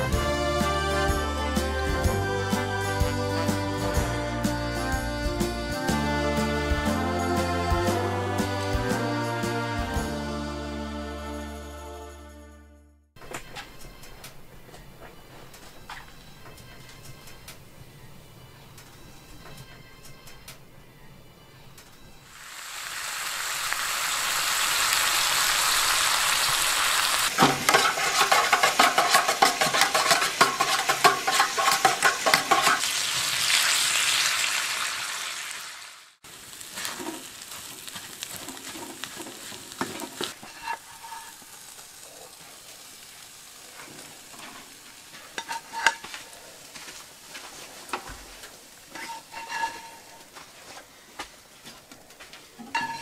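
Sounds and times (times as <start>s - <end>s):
bacon sizzling in a skillet: 22.3s - 50.3s
spatula scraping a pan: 27.3s - 33.0s, 36.6s - 42.8s, 43.8s - 50.4s, 52.6s - 53.0s
pan and spatula clinks: 27.4s - 32.9s, 52.7s - 53.0s.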